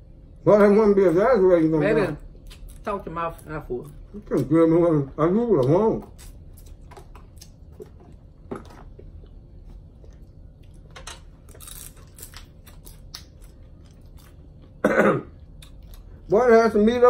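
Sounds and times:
chewing: 5.5s - 16.2s.

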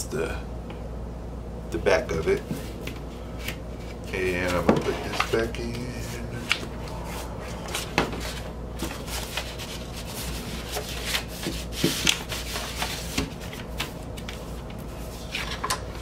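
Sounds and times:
paper sleeve rustling against cardboard: 7.7s - 15.5s.

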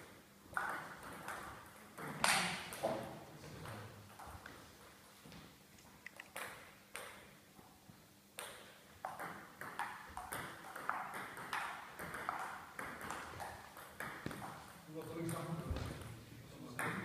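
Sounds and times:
table tennis ball hits: 0.6s - 3.8s, 8.4s - 14.6s, 16.8s - 17.0s.

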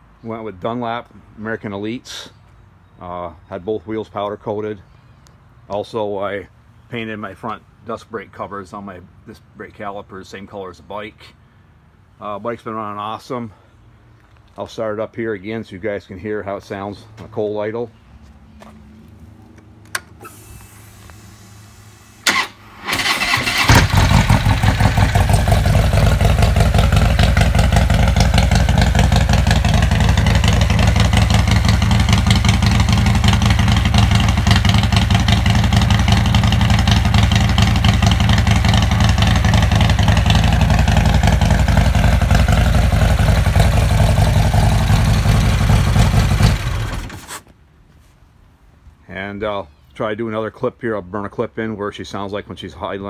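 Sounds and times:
starter motor cranking: 22.2s - 25.3s
motorcycle engine idling: 22.3s - 47.1s.

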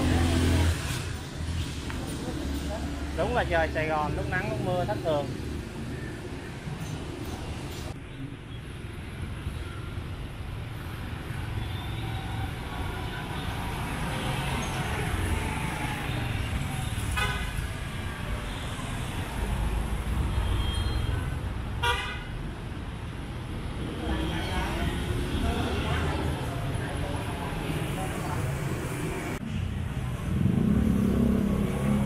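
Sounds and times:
motorbikes passing close: 0.0s - 5.9s, 23.8s - 32.0s
street traffic rumbling: 0.0s - 32.0s.

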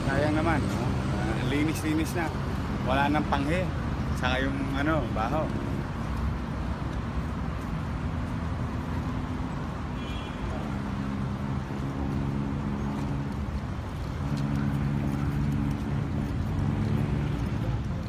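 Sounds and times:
road traffic: 0.0s - 18.0s.

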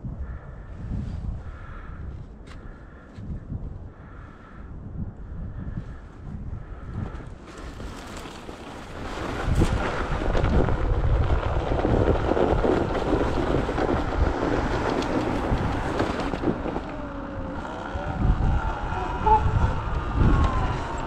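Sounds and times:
rumble of movement over snow: 0.0s - 21.0s
wind buffeting microphone: 0.0s - 21.0s
car passing: 13.1s - 21.0s.

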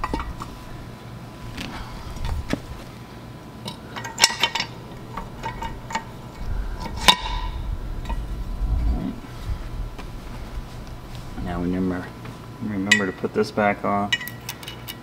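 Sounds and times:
metal clinks of propeller fitting: 3.6s - 6.1s, 14.1s - 15.0s.

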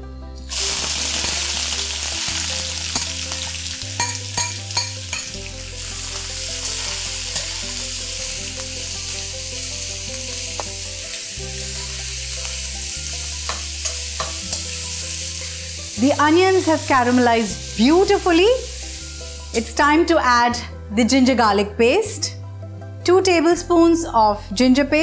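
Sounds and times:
onions sizzling in a wok: 0.4s - 20.0s.

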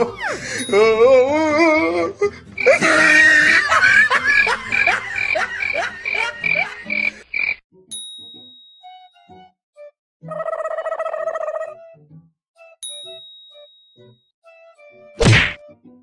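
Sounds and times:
rhythmic croaking calls: 2.5s - 3.2s, 4.1s - 7.6s.

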